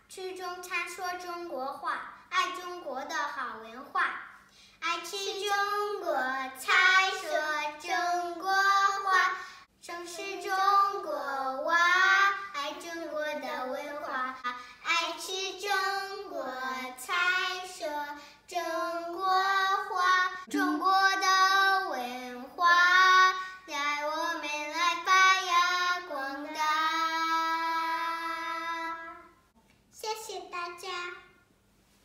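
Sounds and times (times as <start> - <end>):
girls singing together: 5.0 - 29.5.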